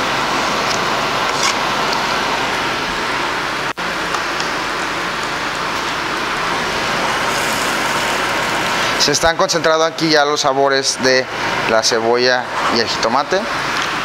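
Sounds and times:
onion and tomato sizzling in pan: 0:03.3 - 0:10.2.

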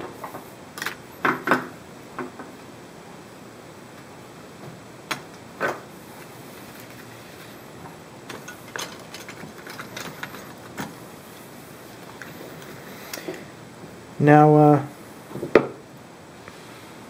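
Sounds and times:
accessories clicking and rattling: 0:08.3 - 0:10.9.

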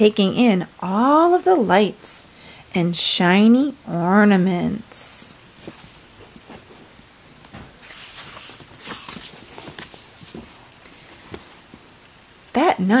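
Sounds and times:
paper rustling: 0:05.6 - 0:07.0, 0:07.6 - 0:11.8.

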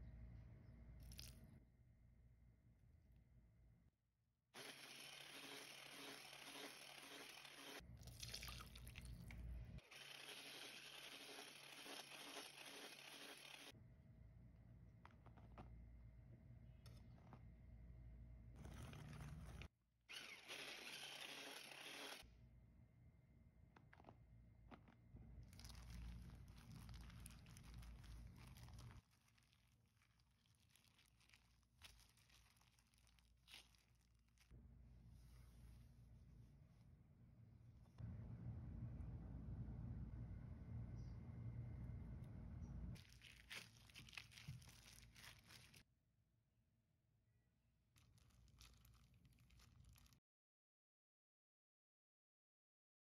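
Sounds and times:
whisk beating butter in glass bowl: 0:10.0 - 0:13.7
dough squishing and rustling: 0:18.5 - 0:19.7, 0:23.9 - 0:34.6, 0:43.0 - 0:45.9, 0:47.9 - 0:50.2
plastic glove crinkling: 0:18.6 - 0:19.7, 0:25.3 - 0:34.6, 0:43.0 - 0:45.9, 0:48.0 - 0:50.2.

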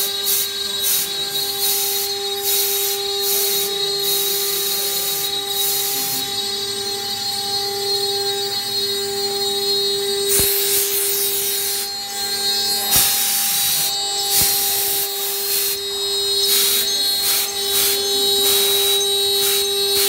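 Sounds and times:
bit cutting hiss: 0:00.0 - 0:07.4, 0:08.5 - 0:20.0
router spindle whining: 0:00.0 - 0:20.0.

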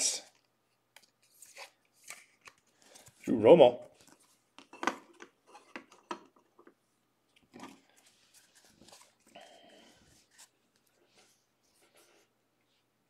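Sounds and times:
cards clicking and rustling: 0:00.4 - 0:03.2.

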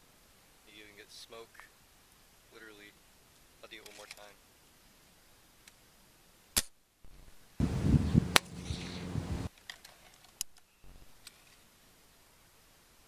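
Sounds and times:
low rumbling noise: 0:07.6 - 0:09.5
air rifle dry-fire crack: 0:08.2 - 0:09.5.

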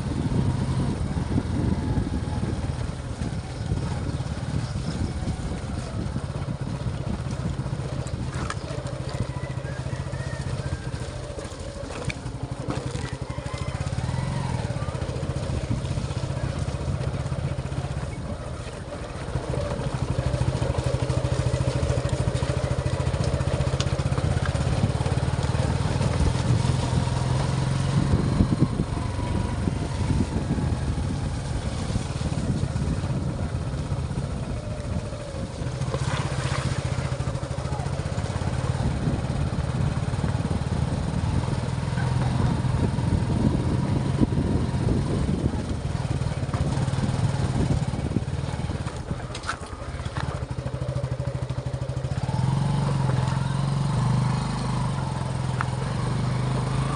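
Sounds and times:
motorcycle engine running: 0:00.0 - 0:56.9.

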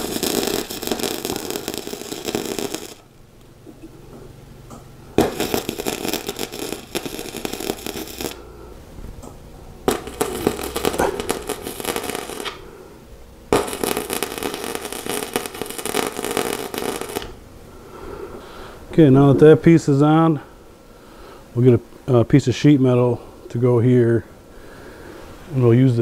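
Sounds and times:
arc welding: 0:00.0 - 0:03.5, 0:05.1 - 0:08.5, 0:09.2 - 0:12.6, 0:13.4 - 0:17.4.

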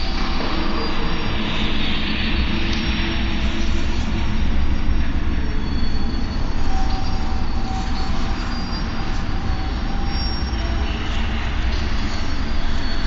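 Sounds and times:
ride car rumbling on rails: 0:00.0 - 0:13.0
thin wheel squeals: 0:05.4 - 0:13.0.

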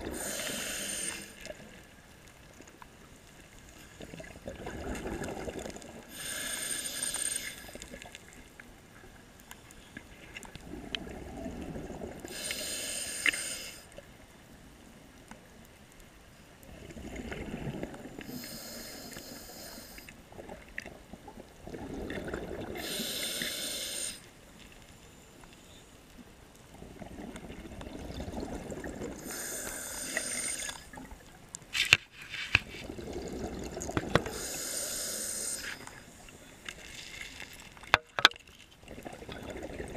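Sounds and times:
hissing inhale through regulator: 0:00.1 - 0:01.7, 0:06.0 - 0:08.0, 0:12.2 - 0:14.0, 0:18.2 - 0:20.2, 0:22.6 - 0:24.3, 0:29.1 - 0:31.0, 0:34.1 - 0:36.9
bubbling exhaled air: 0:04.1 - 0:07.9, 0:21.6 - 0:24.2, 0:26.8 - 0:31.2, 0:32.7 - 0:36.0, 0:38.9 - 0:39.9.

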